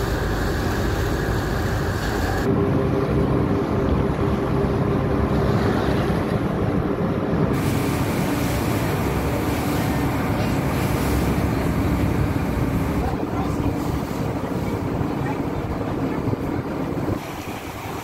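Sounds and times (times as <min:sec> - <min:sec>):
boat engine running: 0:00.0 - 0:18.0
water rushing along hull: 0:00.0 - 0:18.0
wind buffeting microphone: 0:00.0 - 0:18.0.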